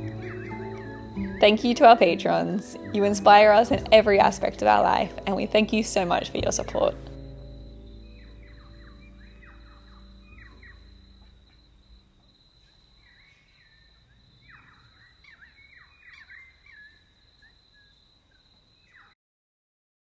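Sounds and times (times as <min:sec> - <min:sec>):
birds calling in sliding notes: 0:00.0 - 0:11.8
soft background music: 0:00.0 - 0:12.1.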